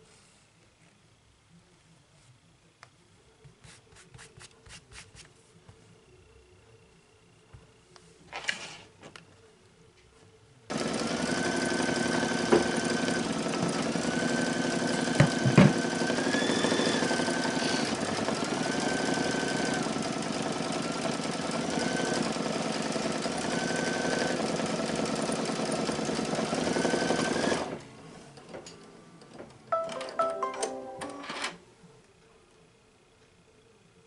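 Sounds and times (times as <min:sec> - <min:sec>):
embroidery machine stitching: 0:10.7 - 0:27.8.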